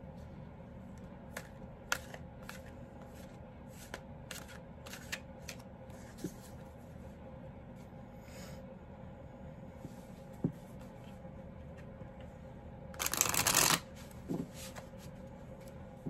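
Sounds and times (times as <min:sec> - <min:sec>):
faint steady hum: 0:00.0 - 0:16.0
cards being shuffled: 0:01.3 - 0:06.6, 0:13.0 - 0:15.0.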